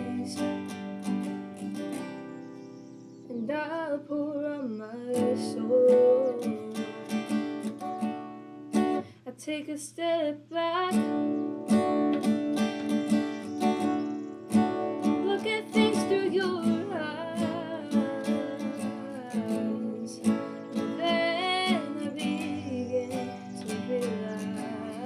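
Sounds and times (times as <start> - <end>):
woman singing: 0.0 - 1.4, 3.3 - 7.6, 8.9 - 11.6, 15.0 - 25.0
acoustic guitar strummed: 0.0 - 3.4, 5.0 - 9.2, 10.8 - 25.0.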